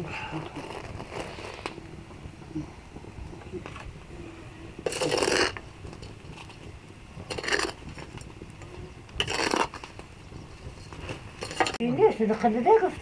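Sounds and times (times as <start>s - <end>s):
corn cobs scraping in grit: 0.5s - 1.8s, 4.8s - 5.6s, 7.2s - 10.0s.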